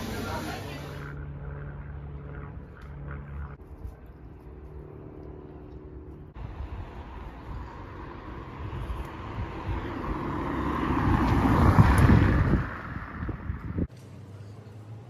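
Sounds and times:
low hum: 0.0 - 9.0
vehicle approaching: 0.0 - 15.0.

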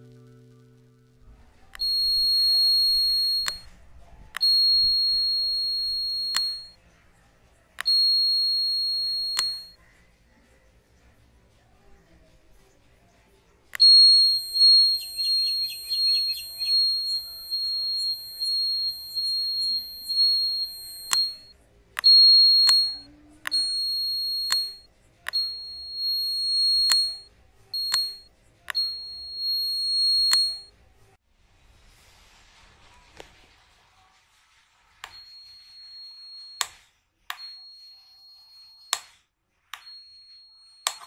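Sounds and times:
high-pitched electronic buzzer: 0.0 - 3.7, 4.4 - 6.8, 7.8 - 9.8, 13.8 - 21.5, 22.1 - 30.7.

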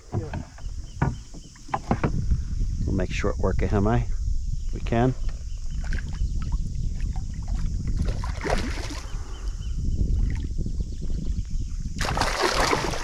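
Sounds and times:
wind rumble on microphone: 0.0 - 13.0
water splashing against canoe: 5.8 - 9.2, 12.0 - 13.0.

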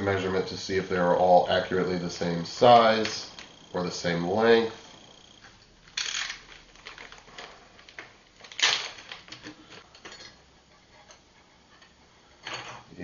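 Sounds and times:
plastic bag rustling: 6.2 - 9.8.

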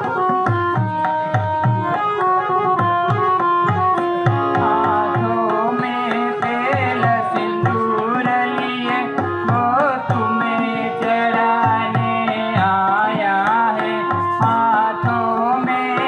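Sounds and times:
harmonium: 0.0 - 16.0
tabla strokes: 0.0 - 16.0
man singing devotional song: 4.0 - 16.0.

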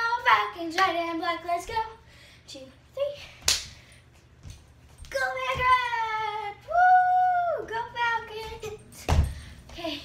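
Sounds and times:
girl chanting a cheer: 5.1 - 8.8.

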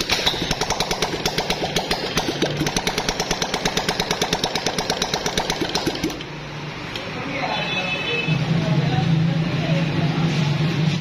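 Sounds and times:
motorcycle engine running: 0.0 - 6.2
mechanical valve clatter: 0.0 - 6.4.

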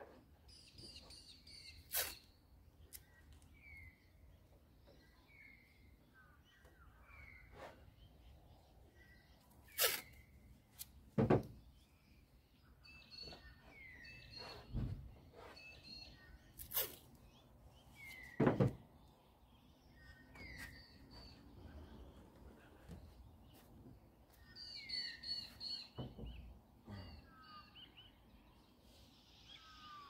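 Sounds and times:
birds chirping: 11.4 - 30.0.

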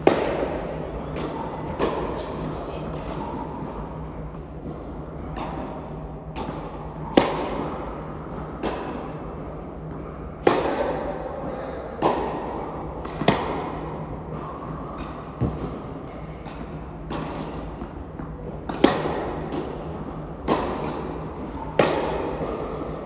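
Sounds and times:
tennis ball struck by rackets: 0.0 - 2.2, 6.4 - 9.2, 10.4 - 11.1, 12.0 - 14.4, 18.2 - 22.6.

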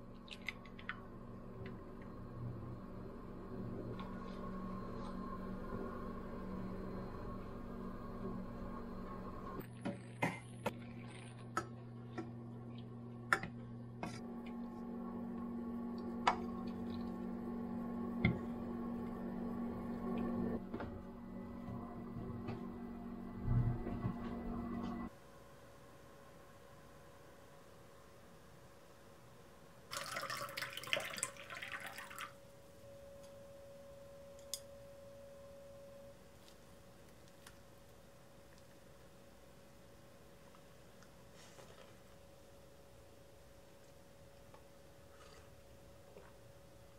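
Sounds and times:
steady low hum: 0.0 - 29.8.

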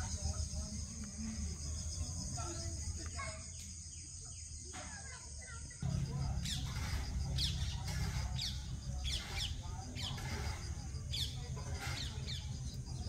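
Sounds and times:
high-pitched insect chorus: 0.0 - 13.0
bird chirps: 5.7 - 13.0.

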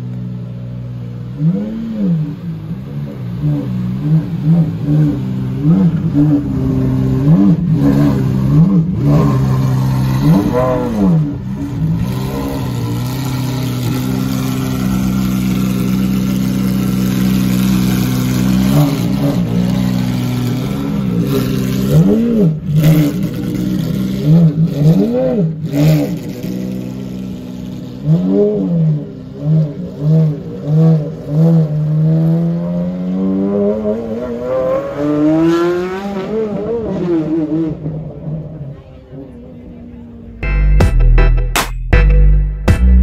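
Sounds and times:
car engine idling and revving: 0.0 - 40.4.

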